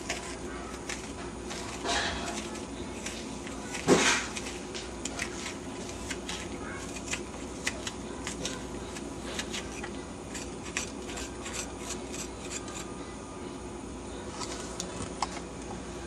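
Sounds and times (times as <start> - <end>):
metal blade scraping eggplant: 0.0 - 6.2, 9.4 - 12.9.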